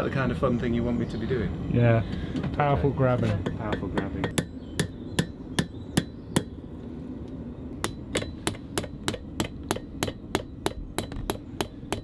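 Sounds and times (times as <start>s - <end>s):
hammer striking iron on anvil: 3.4s - 6.6s, 7.8s - 12.0s.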